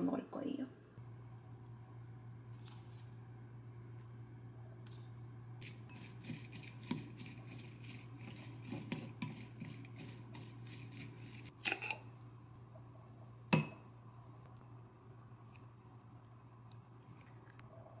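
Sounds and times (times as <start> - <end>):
chopsticks scraping ceramic bowl: 5.6 - 12.0.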